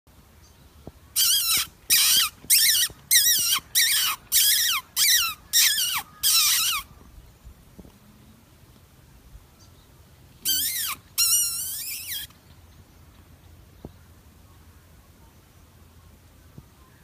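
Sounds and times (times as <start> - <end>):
high-pitched mouth squeaks: 1.2 - 7.0, 10.4 - 12.4.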